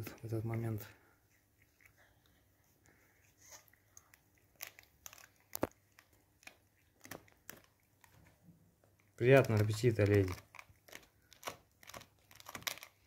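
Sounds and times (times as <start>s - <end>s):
dog gnawing a chew bone: 4.0s - 13.0s.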